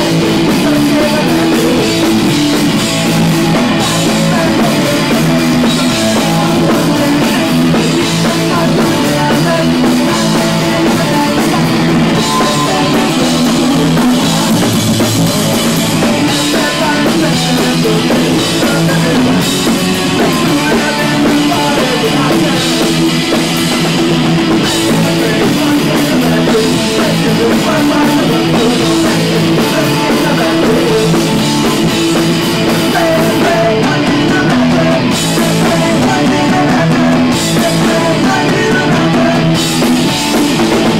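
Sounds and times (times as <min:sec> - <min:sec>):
drum kit: 0:00.0 - 0:40.9
electric guitars: 0:00.0 - 0:40.9
person singing into a microphone: 0:00.0 - 0:40.9.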